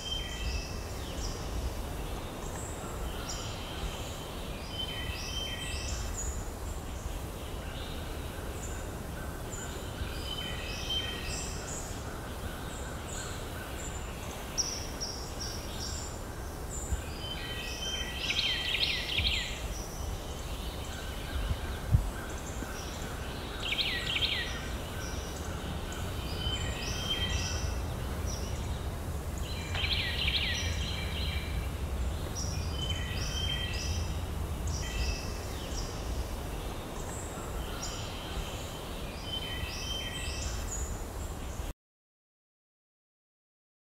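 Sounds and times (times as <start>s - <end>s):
songbirds chirping: 0.0s - 41.7s
loud rapid bird song phrase: 9.5s - 41.7s
low outdoor rumble: 25.2s - 36.5s.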